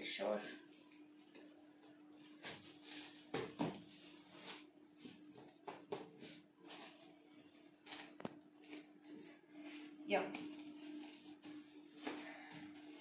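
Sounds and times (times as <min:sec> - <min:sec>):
plastic wrap crinkling: 0:06.6 - 0:09.0.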